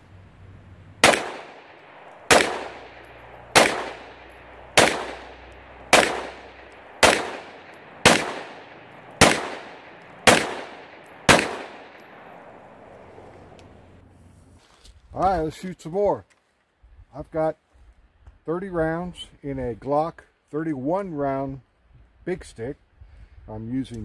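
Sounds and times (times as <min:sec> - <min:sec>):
pistol shots with echo: 0:01.0 - 0:13.1.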